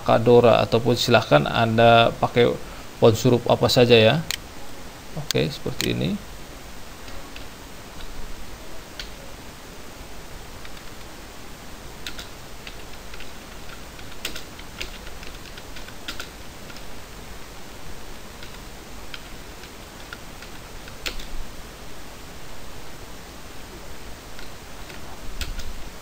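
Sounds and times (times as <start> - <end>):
computer keyboard typing: 12.0 - 16.9, 18.4 - 21.3, 24.4 - 25.7.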